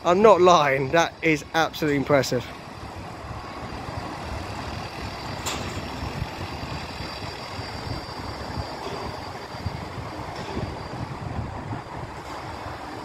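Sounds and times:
machinery engines rumbling: 0.0 - 13.0
wind buffeting microphone: 2.6 - 13.0.

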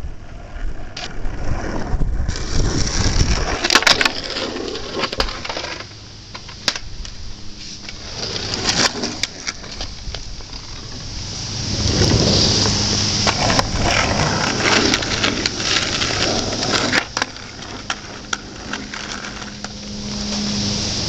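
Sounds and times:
skateboard wheels rolling on asphalt: 0.0 - 21.0
skateboard clacking on pavement: 2.3 - 7.2, 7.8 - 11.1, 11.8 - 19.8.

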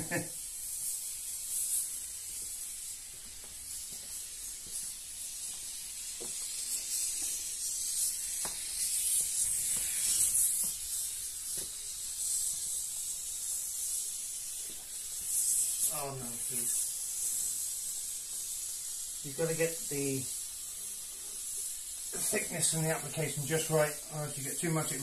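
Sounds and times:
foam gun hissing: 0.0 - 25.0.

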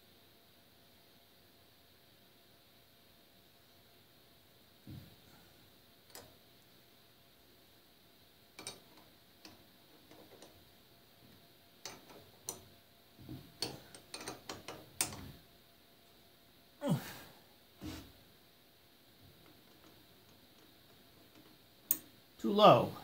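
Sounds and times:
metallic clicks and knocks: 8.6 - 10.6, 11.8 - 12.7, 13.3 - 15.4.

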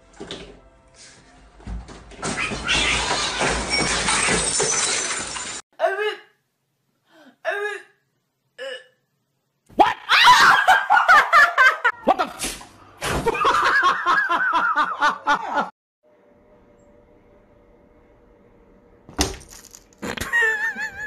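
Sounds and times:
people laughing loudly: 10.3 - 12.4, 13.3 - 15.7.

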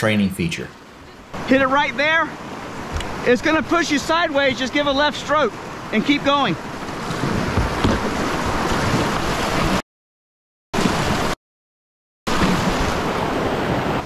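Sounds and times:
whitewater rapids rushing: 1.3 - 9.8, 12.3 - 14.0.

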